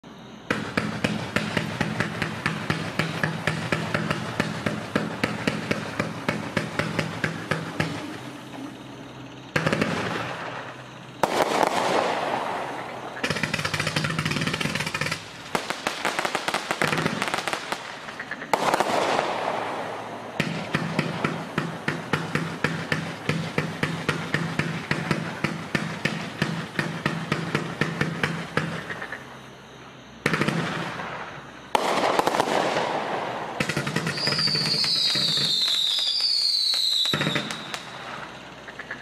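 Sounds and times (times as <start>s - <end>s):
dense firework popping: 0.5s - 8.3s, 9.6s - 29.0s, 30.3s - 38.4s
firework tube shots: 9.6s - 28.8s.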